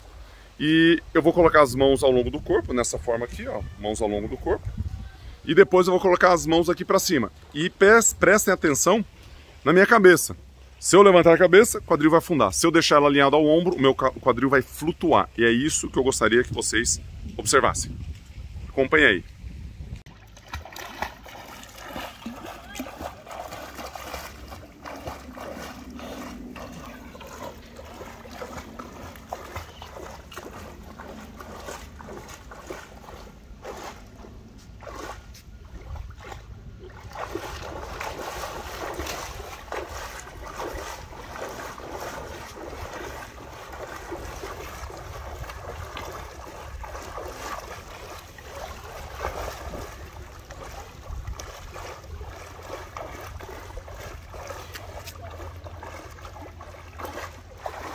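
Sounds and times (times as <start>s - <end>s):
water splashing from kicking: 20.0s - 57.9s.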